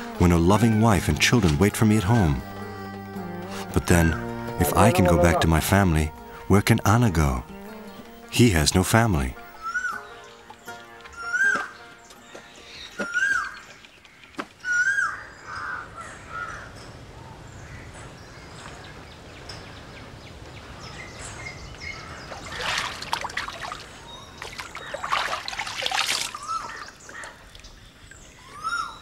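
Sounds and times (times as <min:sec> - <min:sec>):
crows cawing: 0:14.6 - 0:16.7
water splashing: 0:22.2 - 0:27.8.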